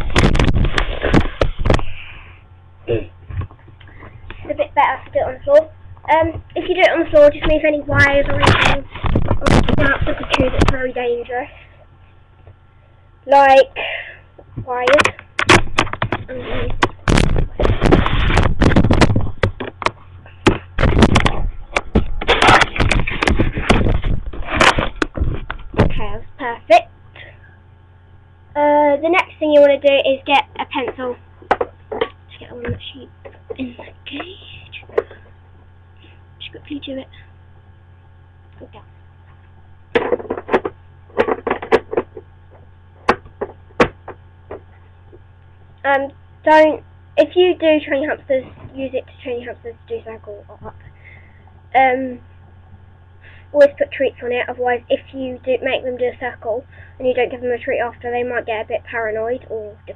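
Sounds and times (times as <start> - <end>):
rustling at microphone: 0.0 - 2.0, 15.6 - 26.0
hard objects clicking and knocking: 30.9 - 33.6, 39.9 - 44.7.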